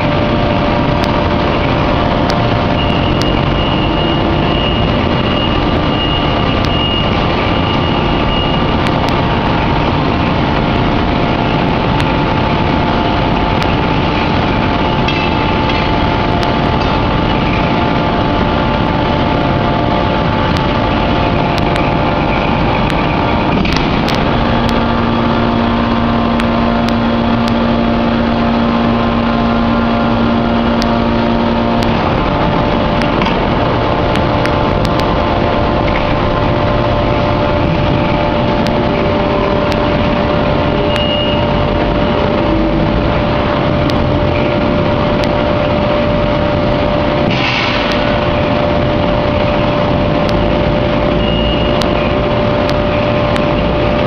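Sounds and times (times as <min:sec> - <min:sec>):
forging press machinery noise: 0:00.0 - 0:54.0
steady hum: 0:00.0 - 0:54.0
steady tone: 0:00.0 - 0:54.0.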